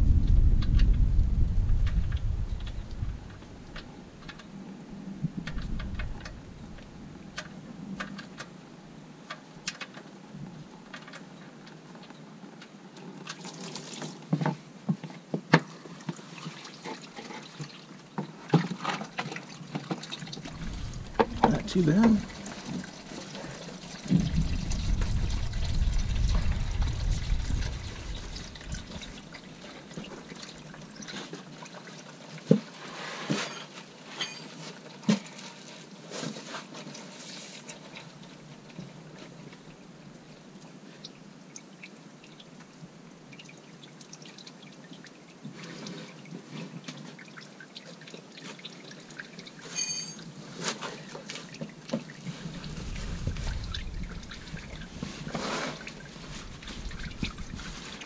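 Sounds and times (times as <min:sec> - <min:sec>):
low rumble: 0:00.0 - 0:04.2, 0:04.8 - 0:07.7, 0:20.4 - 0:22.8, 0:24.0 - 0:29.4, 0:52.5 - 0:55.0
oil trickling: 0:15.8 - 0:32.4, 0:51.0 - 0:58.0.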